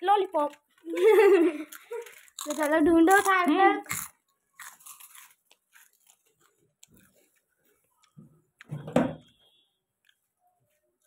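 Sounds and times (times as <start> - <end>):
chewing and crunching: 1.6 - 8.2.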